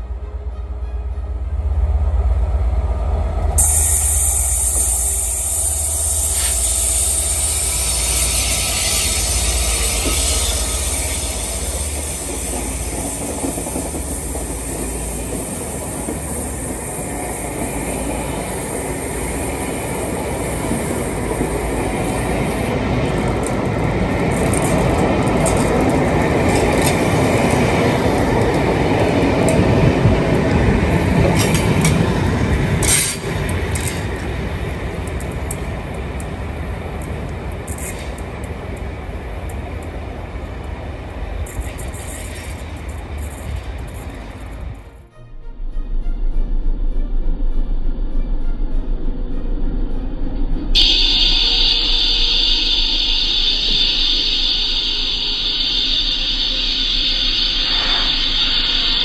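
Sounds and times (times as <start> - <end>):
train wheels rushing on rails: 0.0 - 45.1, 46.5 - 59.0
diesel locomotive engine rumble: 0.0 - 59.0
wheels clicking over rail joints: 3.6 - 16.8, 19.7 - 44.8.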